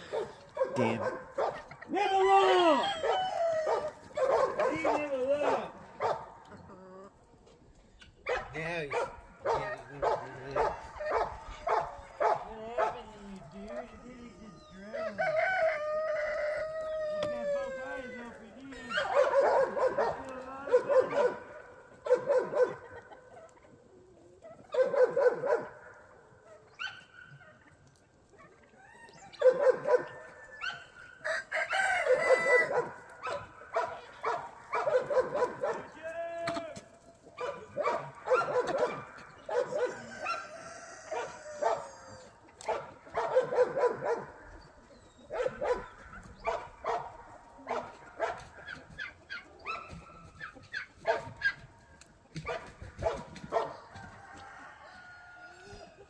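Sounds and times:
dog barking: 0.0 - 1.8, 3.0 - 6.4, 8.2 - 13.0, 18.9 - 23.2, 24.6 - 27.4, 29.3 - 35.9, 37.4 - 51.7, 52.4 - 54.0
roosters crowing: 0.0 - 7.2, 8.3 - 23.5, 27.0 - 56.0.

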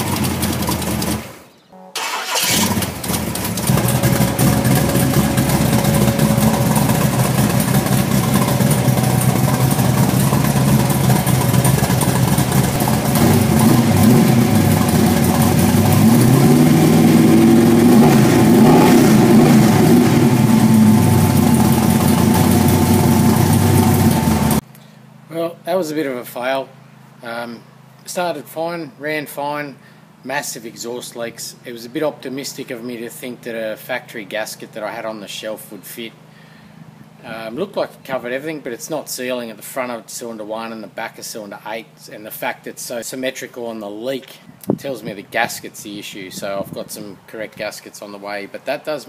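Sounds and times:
car engine idling and revving: 0.0 - 24.6
exhaust leak ticking: 2.0 - 24.6.

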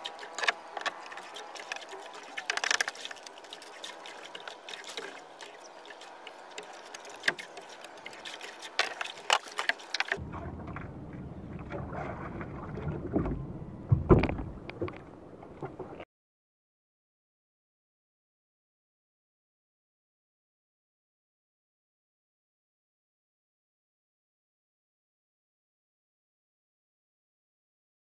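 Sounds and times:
water around a boat: 0.0 - 16.1
low rumble: 10.2 - 16.0.

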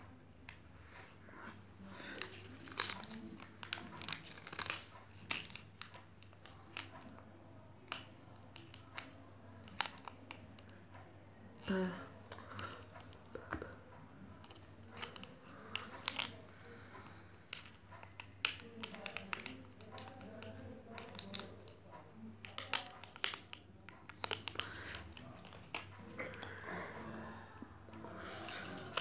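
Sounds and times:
foil wrapper crinkling and tearing: 2.1 - 5.6, 22.4 - 26.2.

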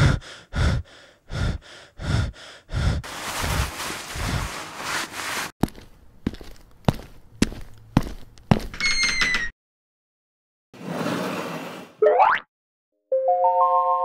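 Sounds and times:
distressed gasping breaths: 0.0 - 4.5
footstep clicks: 5.6 - 8.8.

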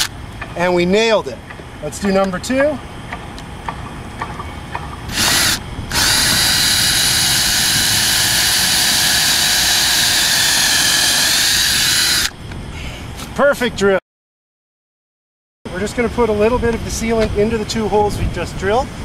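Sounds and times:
cordless drill boring into roof: 5.1 - 12.4.

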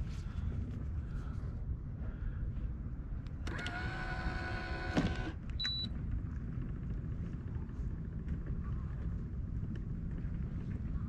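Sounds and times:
electric motor whine: 3.5 - 5.4.

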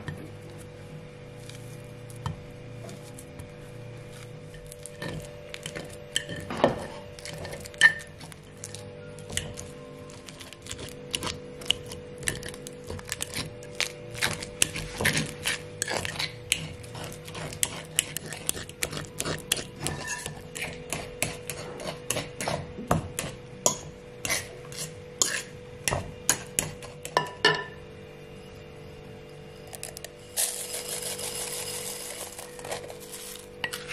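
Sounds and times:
soft background music: 0.0 - 17.4
metal utensil scraping a bowl: 4.2 - 25.6, 29.7 - 33.9.

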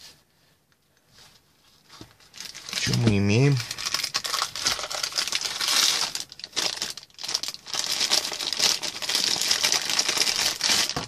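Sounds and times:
plastic bag crinkling: 2.2 - 11.0.

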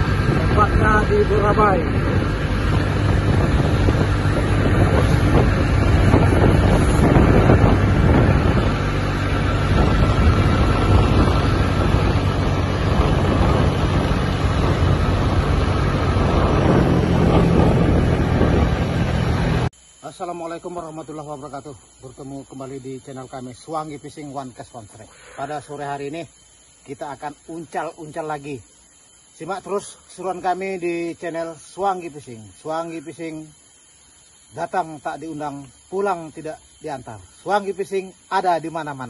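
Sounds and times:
vehicle engine running: 0.0 - 19.7
wind buffeting microphone: 0.0 - 19.7.

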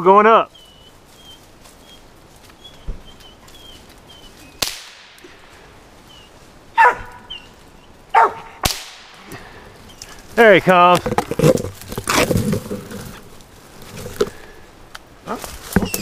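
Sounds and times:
gunshots echoing: 4.6 - 5.2, 8.6 - 9.2
dog barking: 6.8 - 7.3, 8.1 - 8.6.

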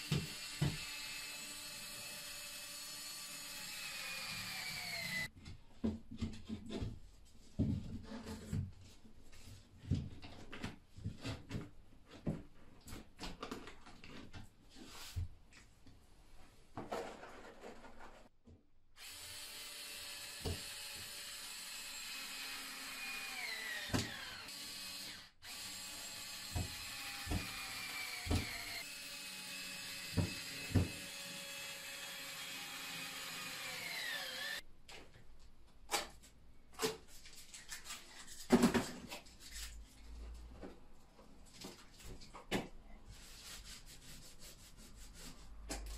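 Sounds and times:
drill motor whining: 0.1 - 5.3, 19.0 - 34.6.

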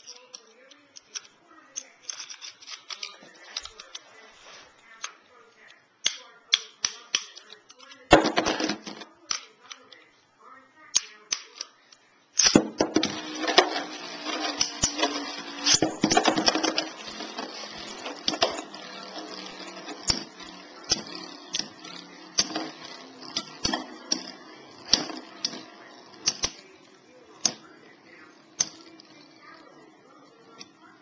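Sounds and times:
spinning tops clacking together: 12.4 - 27.6, 28.5 - 29.2
spinning tops whirring: 12.4 - 31.0.

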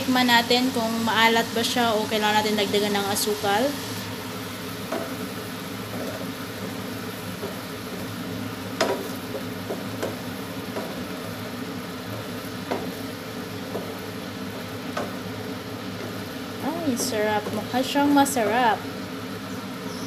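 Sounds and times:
sizzling in a frying pan: 0.0 - 20.0
spatula knocking against pan: 8.8 - 11.1, 12.6 - 13.0.

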